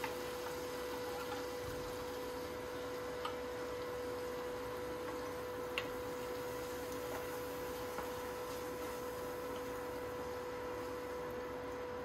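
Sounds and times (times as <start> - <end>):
induction cooktop humming: 0.0 - 12.0.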